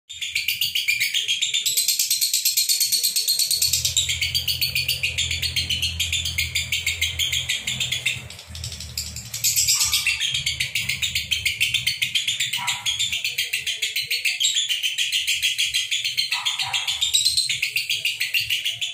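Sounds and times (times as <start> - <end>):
lovebirds chirping shrilly: 2.6 - 18.9.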